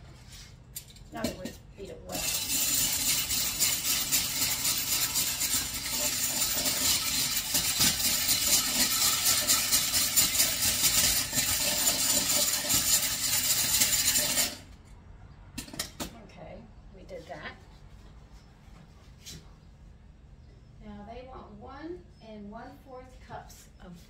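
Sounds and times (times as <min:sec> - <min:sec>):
egg beater rattling: 0:02.0 - 0:14.7.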